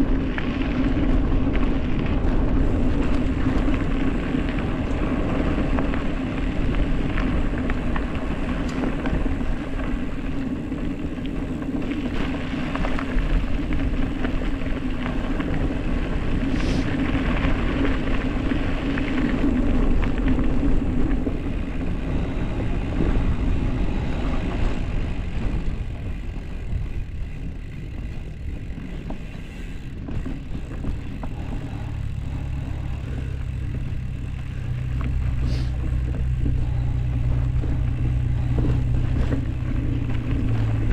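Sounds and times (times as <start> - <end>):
tyres rumbling on dirt road: 0.0 - 40.9
wind rushing over microphone: 0.0 - 40.9.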